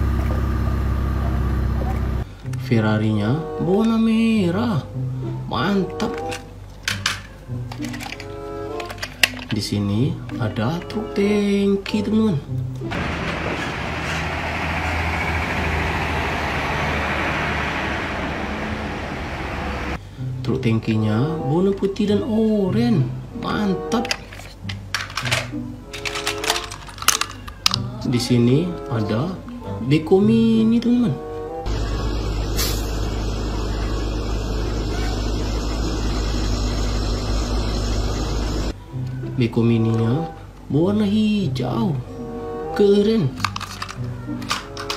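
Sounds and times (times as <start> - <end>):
diesel trucks driving past: 12.9 - 20.0, 31.7 - 38.8.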